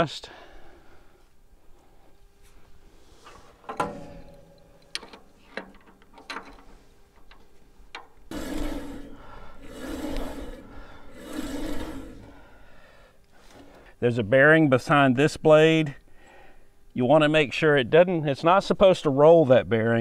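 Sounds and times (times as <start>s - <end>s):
metal clicks and knocks: 3.7s - 8.2s
long rasping rubs: 8.3s - 12.8s.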